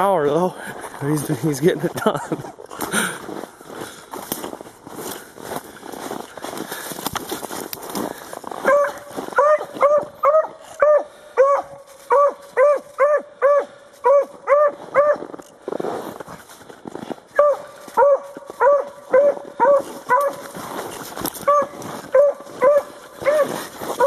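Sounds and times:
dog barking in short rings: 0:08.6 - 0:15.2, 0:17.4 - 0:20.4, 0:21.4 - 0:23.5.

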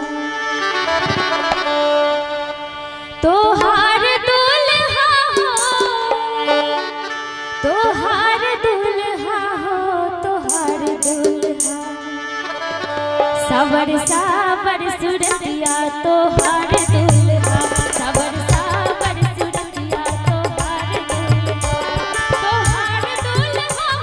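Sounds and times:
hand drum: 0:05.3 - 0:06.4, 0:10.5 - 0:12.0, 0:15.2 - 0:24.0.

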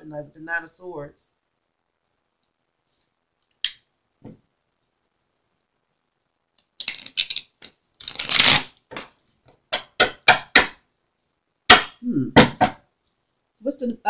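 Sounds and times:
cards rustling while shuffled: 0:06.8 - 0:08.8.

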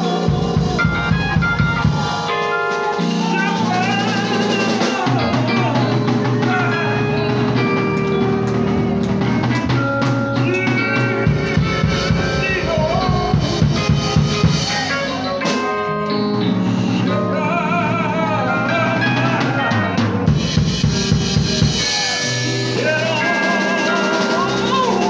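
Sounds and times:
voices singing: 0:00.0 - 0:15.7, 0:21.7 - 0:25.0
drum kit beat: 0:00.0 - 0:15.9, 0:19.1 - 0:25.0
held keyboard chords: 0:00.0 - 0:25.0.

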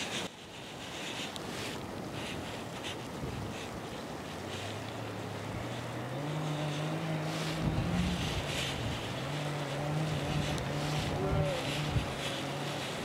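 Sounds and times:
wind hissing: 0:00.0 - 0:13.0
distant engine droning: 0:03.8 - 0:13.0.

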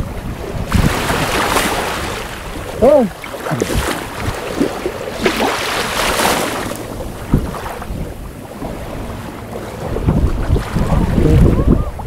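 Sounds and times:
shallow water lapping: 0:00.0 - 0:12.0
wind buffeting microphone: 0:00.0 - 0:12.0.

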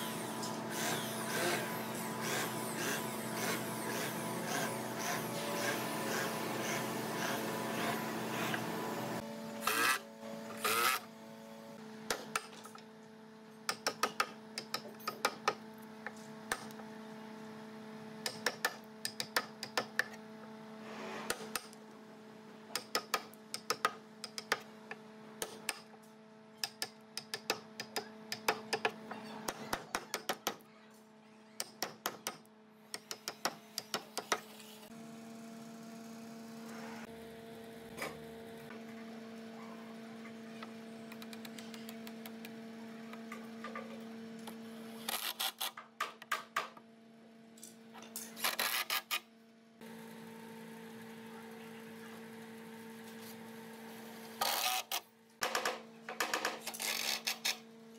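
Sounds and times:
steady motor hum: 0:00.0 - 0:30.3, 0:31.7 - 0:45.8, 0:46.4 - 0:57.9
loud scraping noises: 0:20.8 - 0:21.5.

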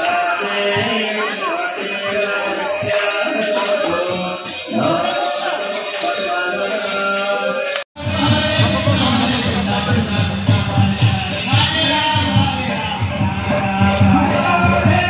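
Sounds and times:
hand cymbals jingling: 0:00.0 - 0:14.4
voices singing: 0:00.0 - 0:15.0
steady drum beat: 0:08.0 - 0:15.0.

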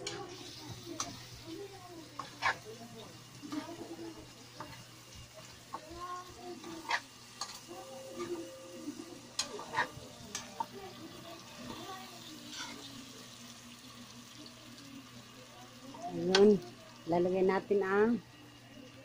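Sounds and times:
stew sizzling: 0:00.0 - 0:19.0
metal spoon scraping a wok: 0:02.2 - 0:02.6, 0:12.4 - 0:12.9.

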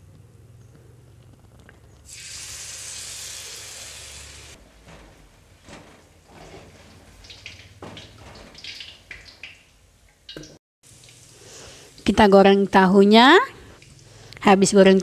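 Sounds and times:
batter sizzling in hot oil: 0:02.1 - 0:04.6, 0:10.8 - 0:12.2.

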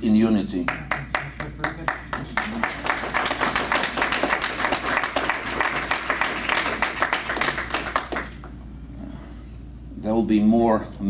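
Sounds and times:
audience applauding: 0:00.7 - 0:08.6.

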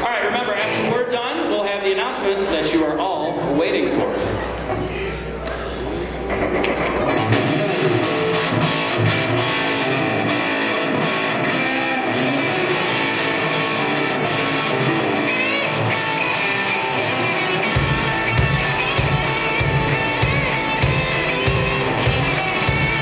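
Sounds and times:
distorted electric guitars: 0:04.2 - 0:23.0
live rock band playing: 0:06.1 - 0:23.0.

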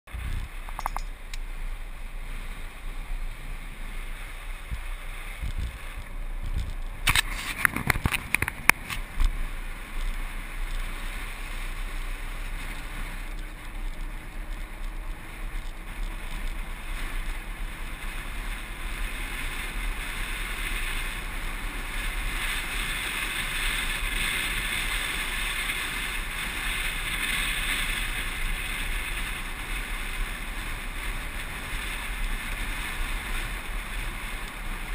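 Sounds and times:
wheels rumbling on hard sand: 0:00.1 - 0:34.9
wind rushing over microphone: 0:00.1 - 0:34.9.

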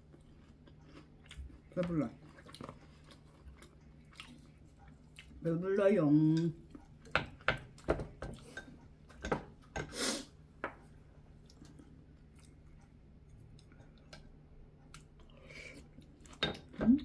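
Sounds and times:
person chewing: 0:00.0 - 0:05.4, 0:11.3 - 0:16.4.

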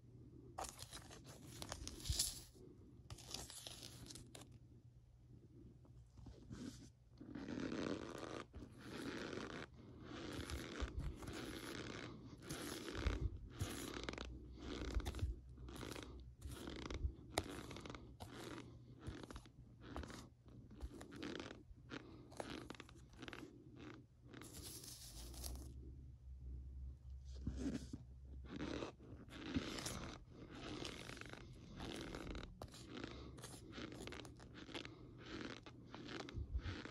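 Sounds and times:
spoon crunching into powder: 0:00.6 - 0:04.4, 0:07.2 - 0:25.7, 0:27.6 - 0:36.9.

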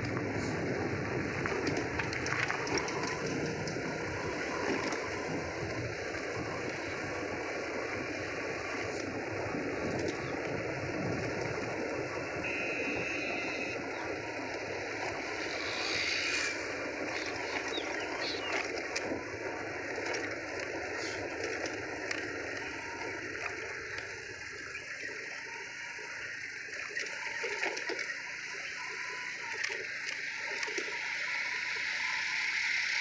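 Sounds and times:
wind noise: 0:00.0 - 0:25.8
vehicle engine running: 0:00.0 - 0:27.4
road noise: 0:00.0 - 0:33.0.

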